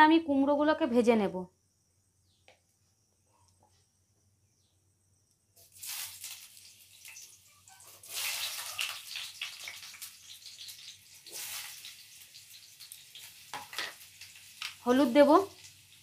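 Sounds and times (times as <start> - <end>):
food sizzling in hot oil: 5.6 - 16.0.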